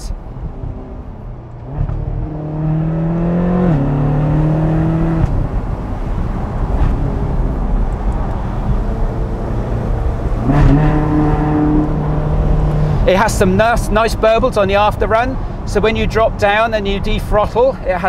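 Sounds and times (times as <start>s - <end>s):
road and wind noise: 0.0s - 18.0s
car engine accelerating: 0.3s - 14.3s.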